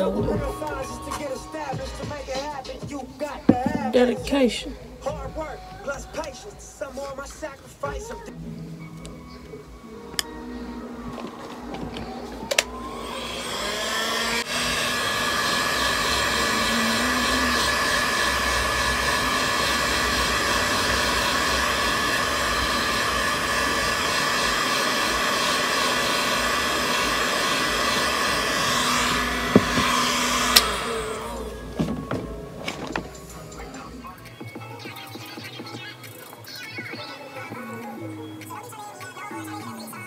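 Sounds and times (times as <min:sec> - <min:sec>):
heat gun blowing: 0:11.0 - 0:33.6.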